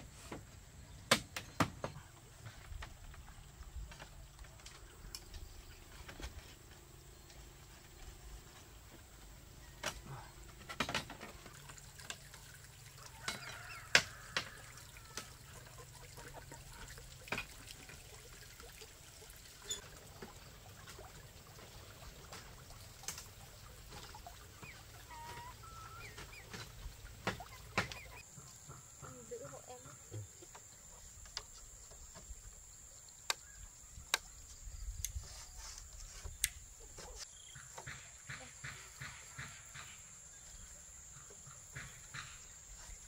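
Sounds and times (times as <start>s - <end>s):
hand tool striking bamboo: 1.1s - 1.8s.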